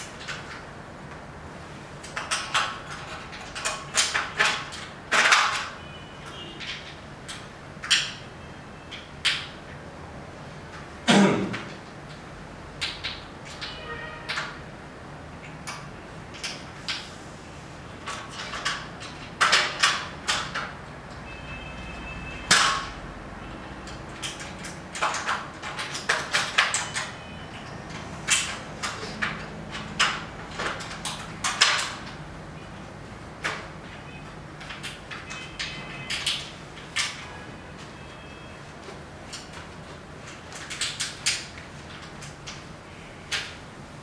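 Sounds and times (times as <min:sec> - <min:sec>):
frame sections clicking and knocking: 0:02.0 - 0:05.8, 0:18.0 - 0:20.9, 0:23.9 - 0:32.3, 0:38.8 - 0:42.7.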